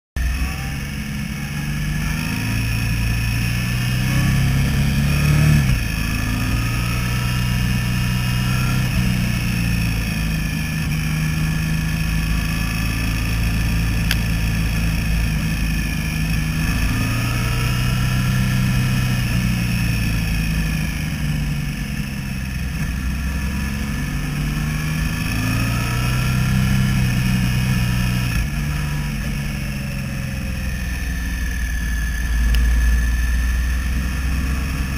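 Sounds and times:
motorcycle engine revving through gears: 0.2 - 34.9.

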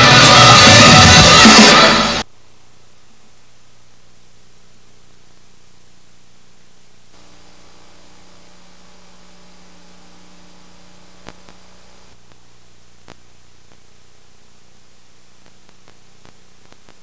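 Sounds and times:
tape hiss and low hum: 0.0 - 17.0
faint clicks: 11.1 - 12.4, 13.0 - 13.9, 15.4 - 17.0.

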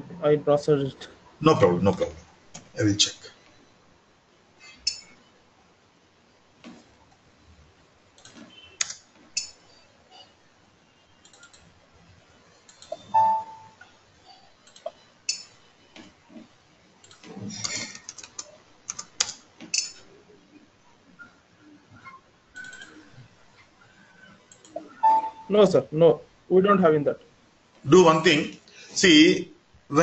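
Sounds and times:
keyboard typing: 8.1 - 9.6, 11.2 - 11.7, 12.6 - 20.1, 22.0 - 23.3, 24.4 - 25.6
mouse clicks: 22.6 - 23.0.

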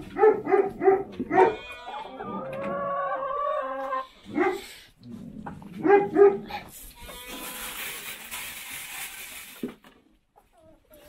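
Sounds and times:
dog barking: 0.0 - 1.6, 4.3 - 4.7, 5.8 - 6.6.

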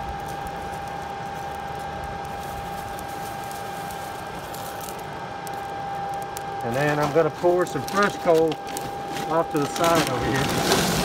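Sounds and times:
electric blower fan whining: 0.0 - 11.0.

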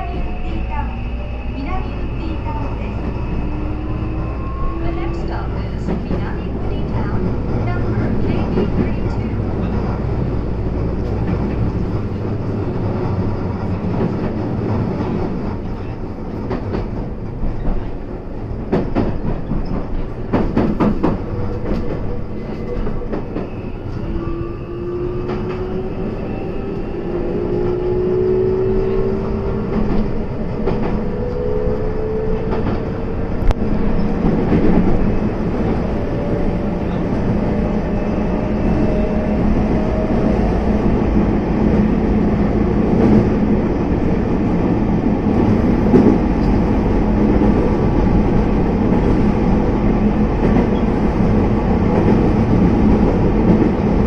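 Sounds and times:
train wheels clattering over rails: 11.0 - 23.6.

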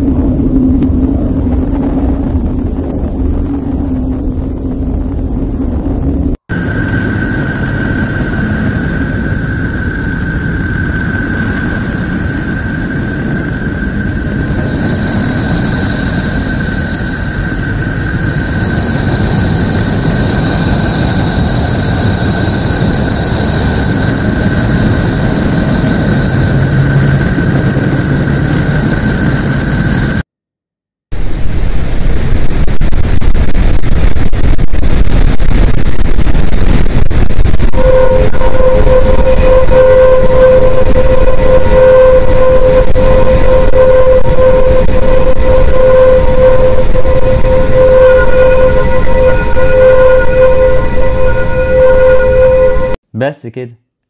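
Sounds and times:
rough rumble: 0.0 - 30.2, 31.1 - 53.0
deep rumbling noise: 0.0 - 30.3, 31.1 - 53.0
steady high whistle: 6.5 - 30.2, 34.2 - 53.0.

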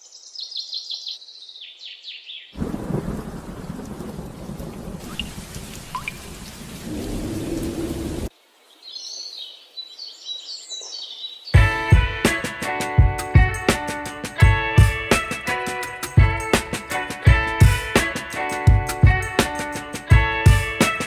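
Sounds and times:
birds chirping: 0.0 - 2.8, 4.4 - 11.6
thunder: 2.6 - 8.3
steady rain: 2.6 - 9.4
guitar music: 11.6 - 21.0.

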